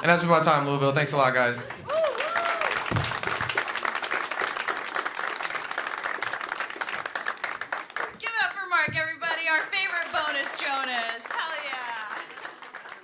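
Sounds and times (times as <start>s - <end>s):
audience applauding: 1.3s - 13.0s.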